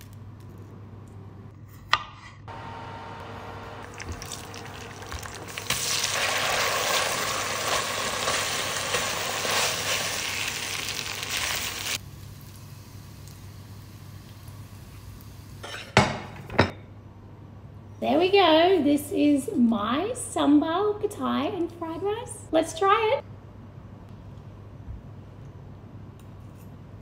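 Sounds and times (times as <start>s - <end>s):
food sizzling in a pot: 3.8s - 15.7s.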